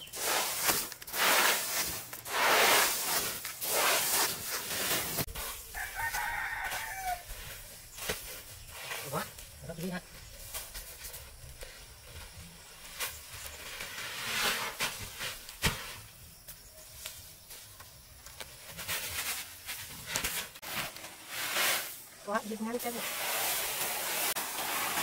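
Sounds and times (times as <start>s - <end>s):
rice grain rustling: 0.0s - 16.1s, 17.0s - 25.0s
sack and straw crackling: 0.0s - 25.0s.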